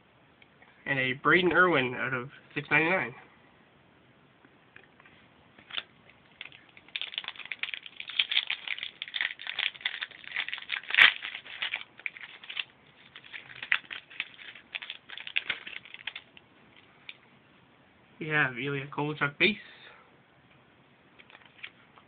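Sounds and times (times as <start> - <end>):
foil pack tearing and crinkling: 6.4 - 16.3.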